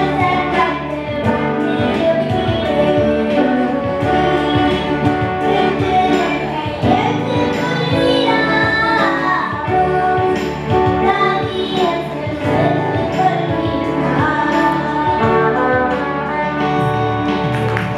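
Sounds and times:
girl singing: 0.0s - 17.4s
electric guitar: 0.0s - 17.9s
electronic keyboard: 0.0s - 17.9s.

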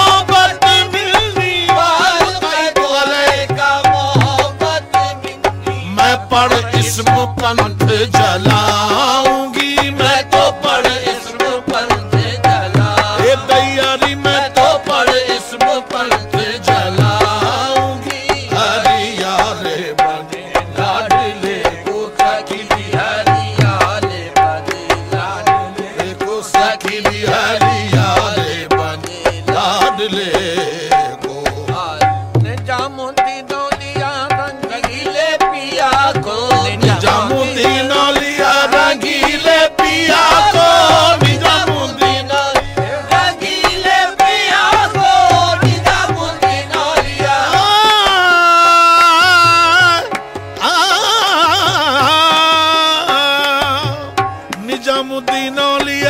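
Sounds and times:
harmonium notes: 0.0s - 56.0s
tabla: 0.0s - 56.0s
man singing long notes: 32.6s - 56.0s.

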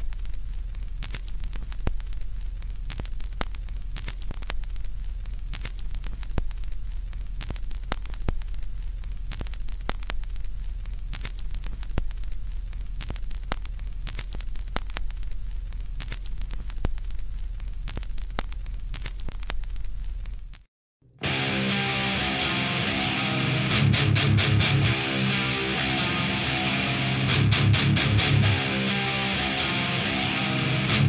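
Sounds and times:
low hum and hiss: 0.0s - 20.6s
vinyl crackles and pops: 0.0s - 31.0s.

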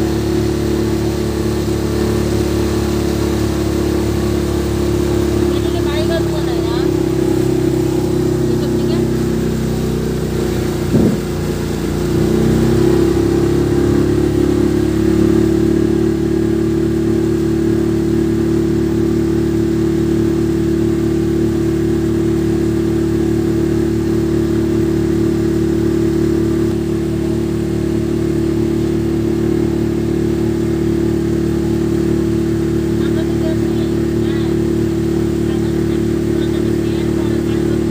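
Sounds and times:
motorboat engine running: 0.0s - 37.9s.

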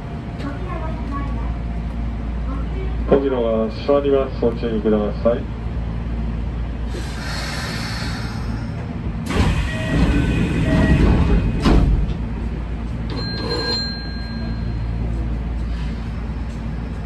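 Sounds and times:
train hum: 0.0s - 17.0s
sliding train doors closing: 6.9s - 14.0s.

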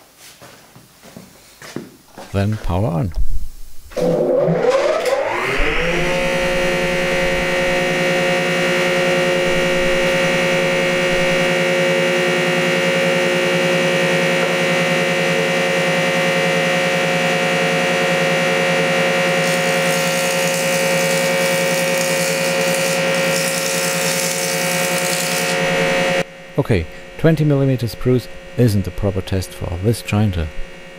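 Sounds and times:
jointer humming with high whine: 2.1s - 30.9s
board being planed hiss: 19.4s - 26.0s.

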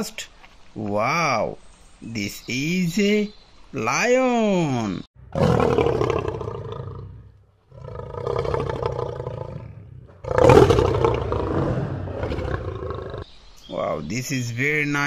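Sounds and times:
lion roaring: 5.3s - 13.2s.

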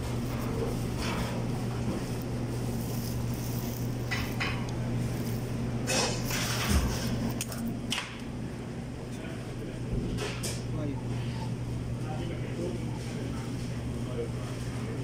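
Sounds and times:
dishes clattering: 4.0s - 4.7s, 5.8s - 6.9s
plates and dishes clinking: 5.8s - 6.9s.

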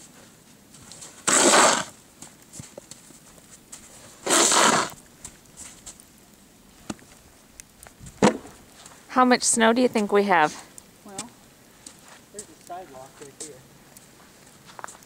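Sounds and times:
snow shovel scraping sidewalk: 0.0s - 2.0s, 3.7s - 5.0s.

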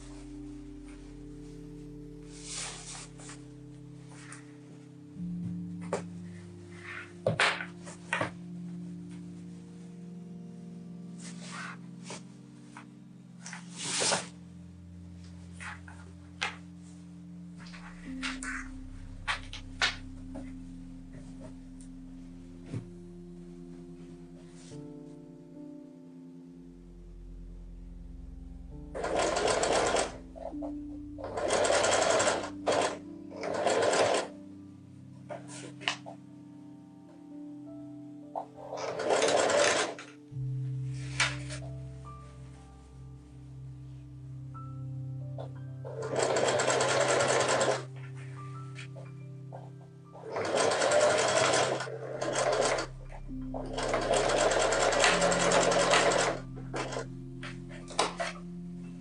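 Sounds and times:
quiet background music: 0.0s - 59.0s
sewing machine stitching: 29.0s - 30.2s, 31.2s - 34.3s, 38.7s - 40.1s, 45.9s - 47.9s, 50.2s - 52.9s, 53.6s - 57.1s.

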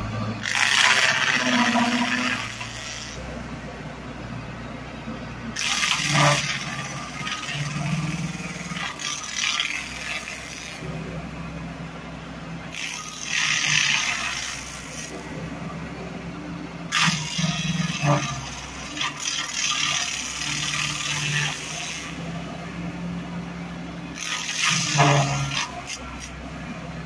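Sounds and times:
loader engine running: 0.0s - 27.0s
stump grinder grating into wood: 0.4s - 3.4s, 5.6s - 11.2s, 12.7s - 15.5s, 16.9s - 23.2s, 24.1s - 26.8s.

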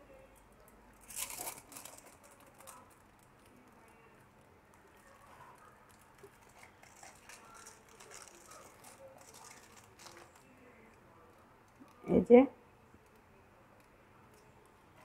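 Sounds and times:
aluminium foil crinkling: 1.0s - 12.1s.

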